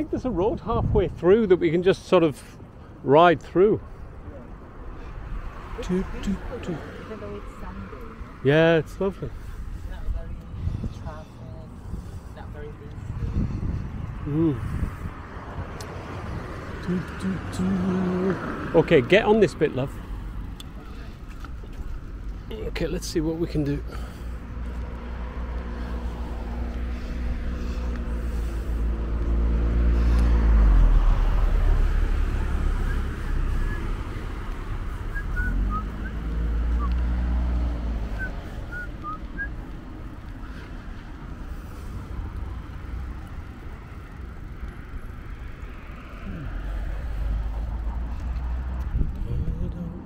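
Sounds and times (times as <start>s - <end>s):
wind rumbling on microphone: 0.0s - 1.3s, 9.6s - 16.8s, 44.6s - 50.0s
vehicle passing: 0.0s - 50.0s.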